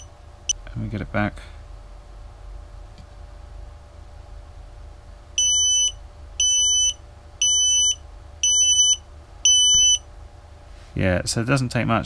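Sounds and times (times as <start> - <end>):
electronic buzzer beeping: 5.4 - 10.0.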